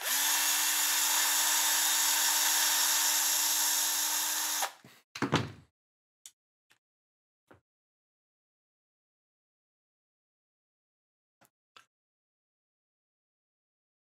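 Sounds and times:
electric screwdriver running: 0:00.0 - 0:04.8.

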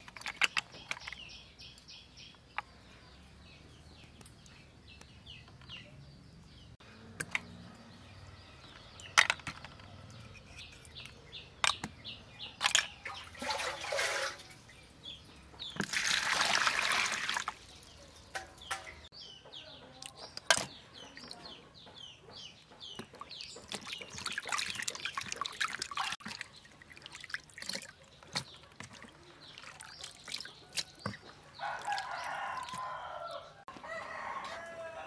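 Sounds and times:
water splashing: 0:13.0 - 0:14.8, 0:15.8 - 0:17.9, 0:23.6 - 0:32.9.

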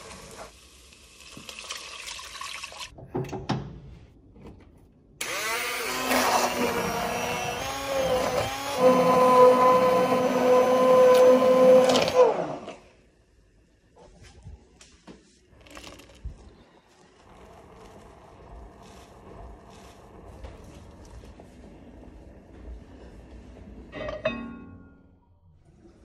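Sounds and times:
immersion blender whining: 0:05.2 - 0:12.8.

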